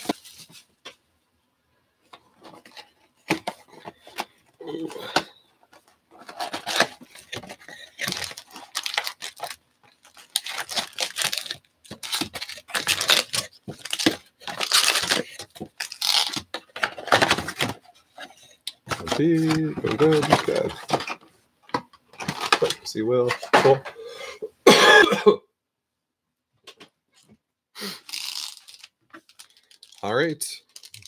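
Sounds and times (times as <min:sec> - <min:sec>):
foil wrappers crinkling and tearing: 0:06.2 - 0:17.8, 0:28.0 - 0:31.0.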